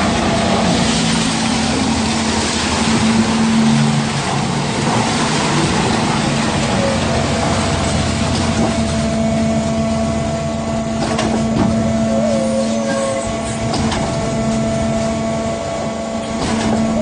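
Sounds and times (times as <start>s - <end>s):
concrete mixer humming: 0.0s - 17.0s
brief mechanical squeal: 12.1s - 13.6s.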